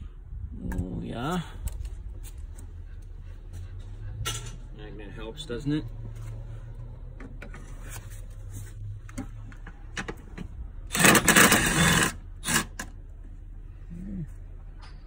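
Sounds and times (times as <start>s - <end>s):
power ratchet spinning bolt: 10.9s - 13.0s.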